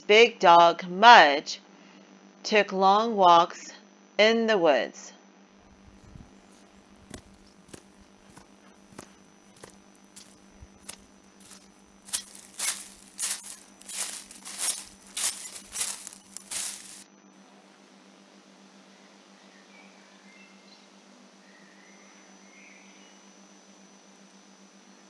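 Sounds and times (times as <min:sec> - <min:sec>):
footsteps crunching through dry leaves: 0:05.7 - 0:17.0.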